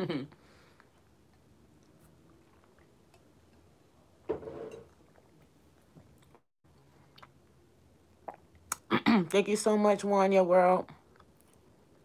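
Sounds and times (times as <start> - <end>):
chewing crunchy food: 0.8 - 3.7.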